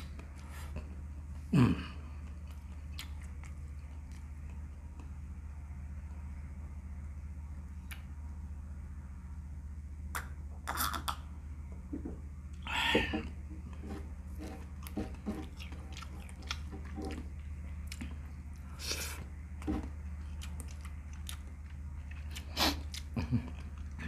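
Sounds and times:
steady low hum: 0.0s - 24.0s
person chewing food: 2.0s - 5.2s, 12.6s - 24.0s.

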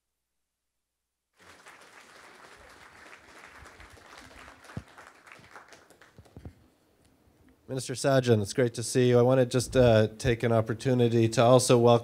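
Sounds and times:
audience applauding: 1.4s - 6.6s.

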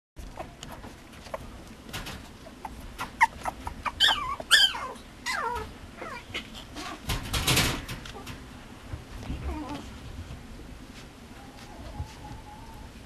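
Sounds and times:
puppy whimpering: 2.5s - 7.0s, 9.4s - 9.9s
rustling noise: 5.4s - 13.0s.

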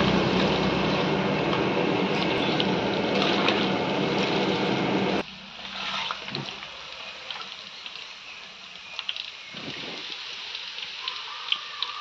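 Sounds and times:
low hum: 0.0s - 5.6s
crackle of frying oil: 0.0s - 12.0s
food deep-frying in hot oil: 0.0s - 12.0s.

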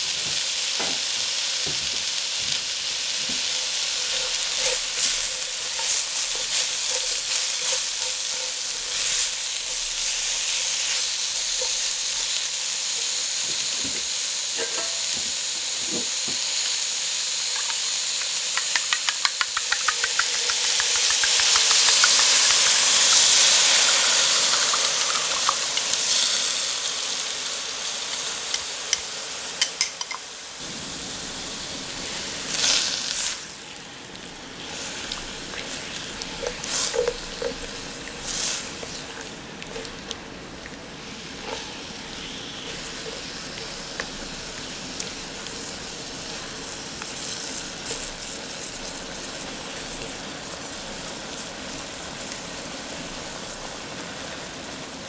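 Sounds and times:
vegetables sizzling in oil: 0.0s - 55.0s
sharp ticks: 17.7s - 23.0s.

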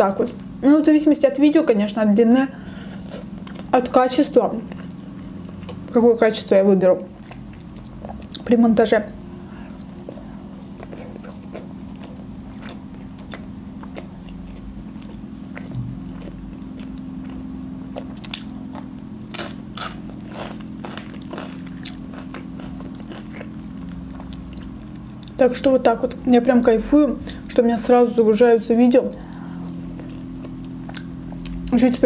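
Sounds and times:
steady low hum: 0.0s - 32.0s
chewing and biting food: 3.0s - 6.0s, 7.0s - 8.5s, 9.2s - 25.4s, 29.1s - 32.0s.

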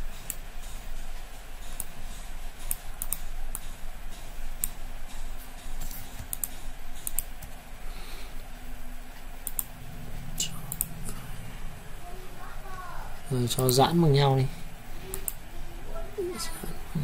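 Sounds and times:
steady low hum: 0.0s - 17.0s
mouse and keyboard clicks: 5.8s - 7.6s.

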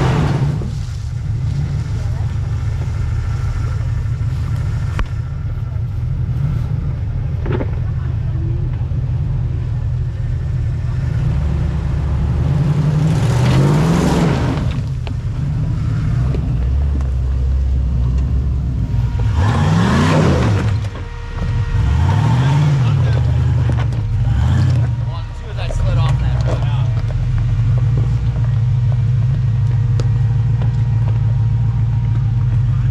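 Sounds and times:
car engine running low: 0.0s - 32.9s.

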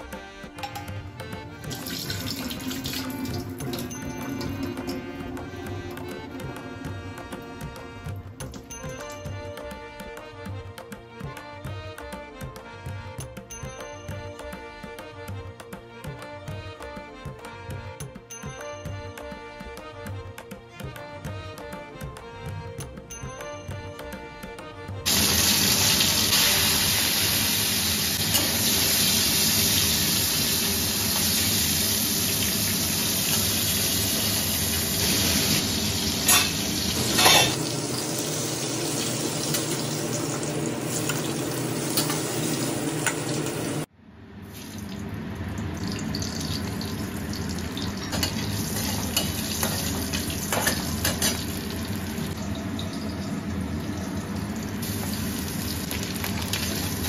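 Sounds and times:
fish frying in hot oil: 25.1s - 43.8s, 44.5s - 57.0s
metal spatula clinking on pan: 36.3s - 36.6s, 37.2s - 37.6s, 48.1s - 51.5s.

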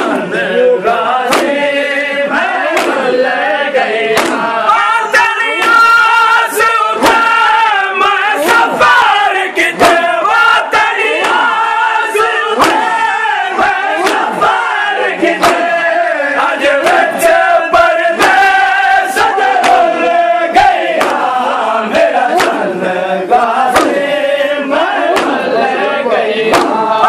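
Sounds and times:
men chanting: 0.0s - 27.0s
hands slapping chests: 1.2s - 1.7s, 2.4s - 3.2s, 4.1s - 4.7s, 5.5s - 6.1s, 7.0s - 7.4s, 9.7s - 10.1s, 10.7s - 11.7s, 12.6s - 13.0s, 13.6s - 14.6s, 15.2s - 17.4s, 18.2s - 21.5s, 22.1s - 22.7s, 23.6s - 24.1s, 25.0s - 25.6s, 26.5s - 26.9s.

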